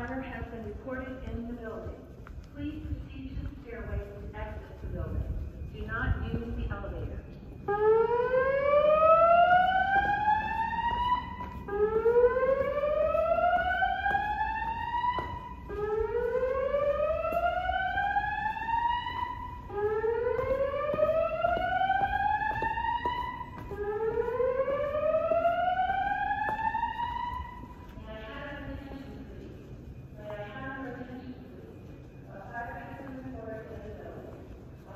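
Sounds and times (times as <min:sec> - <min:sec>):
fire alarm whoop tone: 0:07.0 - 0:27.9.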